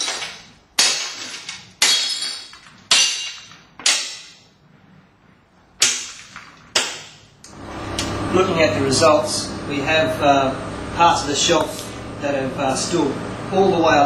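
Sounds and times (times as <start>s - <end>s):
breaking glass clattering: 0.0s - 4.4s
hammer striking glass: 0.0s - 4.4s, 5.8s - 7.2s.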